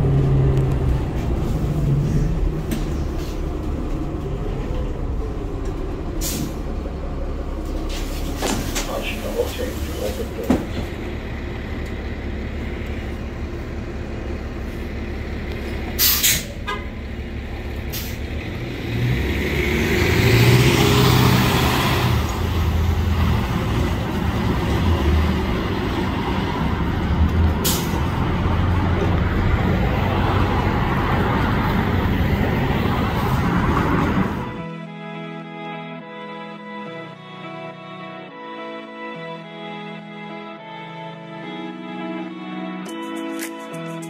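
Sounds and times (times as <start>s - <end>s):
bus diesel engine idling: 0.0s - 18.6s, 22.1s - 42.8s
air brake blast: 6.2s - 6.6s, 16.0s - 16.6s, 27.6s - 28.0s.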